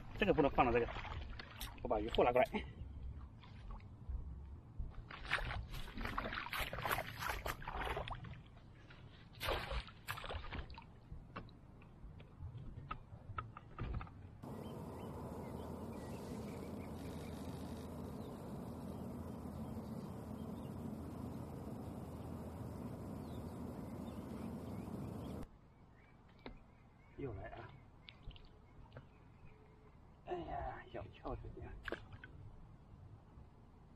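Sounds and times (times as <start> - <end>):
water splashing and sloshing: 0.0 - 2.4, 4.9 - 11.9, 31.8 - 32.5
steady rushing noise: 14.4 - 25.4.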